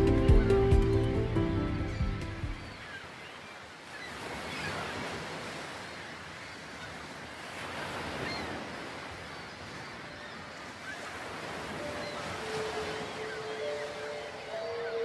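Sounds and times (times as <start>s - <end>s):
sea surf washing onto shore: 3.8s - 15.0s
faint bird calls: 7.8s - 15.0s.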